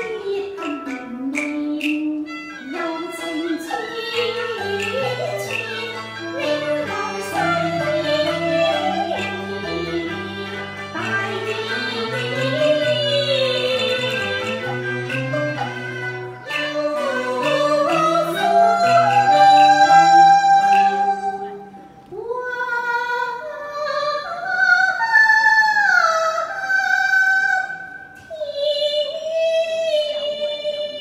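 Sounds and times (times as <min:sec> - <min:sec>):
woman singing opera: 0:00.0 - 0:15.8, 0:16.4 - 0:31.0
instrumental accompaniment: 0:00.0 - 0:22.3.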